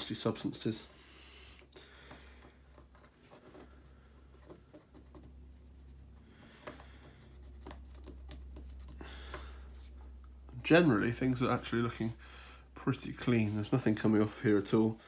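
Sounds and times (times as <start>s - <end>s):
low steady hum: 0.0s - 15.0s
cotton bud scratching plastic: 2.4s - 9.0s.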